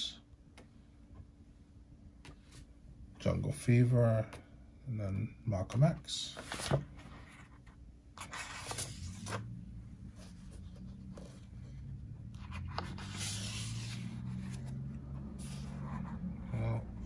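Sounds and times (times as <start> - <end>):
low steady hum: 0.0 - 17.0
book pages turning: 6.3 - 16.8.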